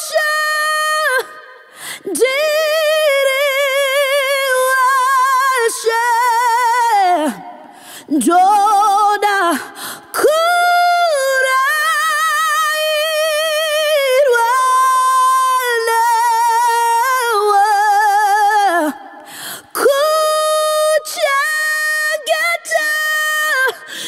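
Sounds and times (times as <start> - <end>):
woman singing unaccompanied: 0.0 - 24.0
woman breathing: 1.6 - 2.1, 7.6 - 8.1, 9.8 - 10.1, 19.2 - 19.8, 23.8 - 24.0.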